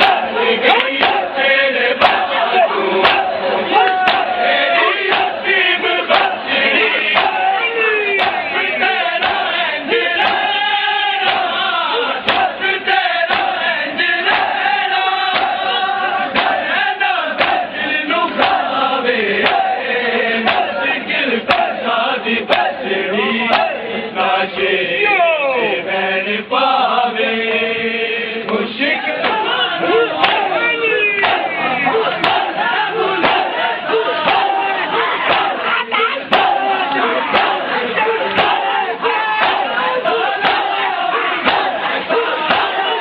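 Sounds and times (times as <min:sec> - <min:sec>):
crowd of men chanting: 0:00.0 - 0:43.0
hands slapping chests: 0:02.0 - 0:02.3, 0:03.0 - 0:04.4, 0:08.2 - 0:08.5, 0:11.2 - 0:11.6, 0:12.2 - 0:12.6, 0:13.3 - 0:13.6, 0:15.3 - 0:15.6, 0:16.3 - 0:16.6, 0:17.3 - 0:17.7, 0:19.4 - 0:19.7, 0:20.4 - 0:20.8, 0:21.5 - 0:21.8, 0:30.2 - 0:30.5, 0:31.2 - 0:31.5, 0:33.2 - 0:33.6, 0:35.2 - 0:35.7, 0:38.3 - 0:38.8, 0:39.4 - 0:39.8, 0:40.4 - 0:40.8, 0:41.4 - 0:42.8.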